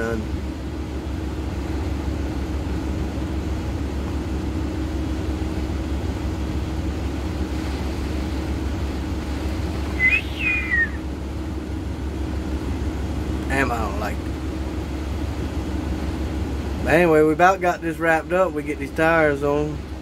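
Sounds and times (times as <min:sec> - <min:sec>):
diesel engine idling: 0:00.0 - 0:20.0
short high chirp: 0:10.0 - 0:11.0.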